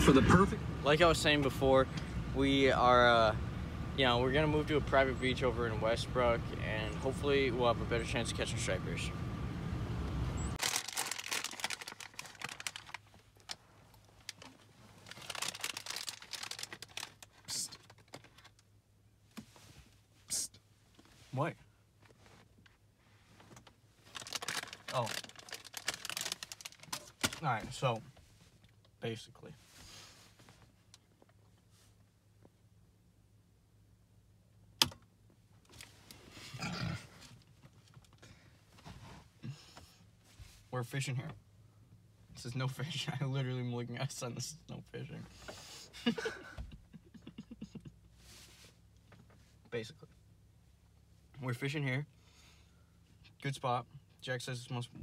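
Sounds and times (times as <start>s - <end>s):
plastic wrapper crinkling: 10.6s - 13.6s, 14.2s - 18.5s, 24.0s - 27.5s
person making rough vocal noise: 36.5s - 37.2s.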